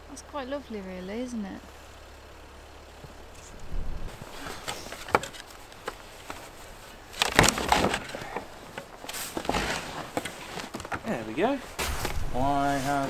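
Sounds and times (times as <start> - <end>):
low steady hum: 0.0 - 13.0
footsteps crunching through snow: 11.5 - 13.0.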